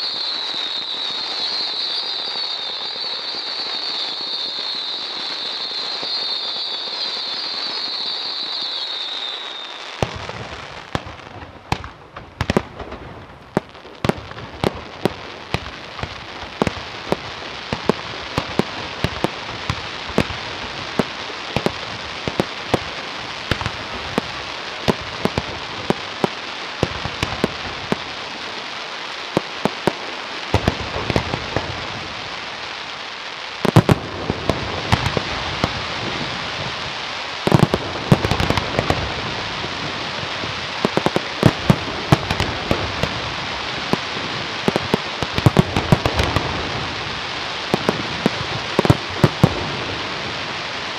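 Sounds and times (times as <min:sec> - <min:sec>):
firework whistle: 0:00.0 - 0:11.3
fireworks crackling hiss: 0:00.0 - 0:50.9
fireworks popping and banging: 0:00.0 - 0:50.9.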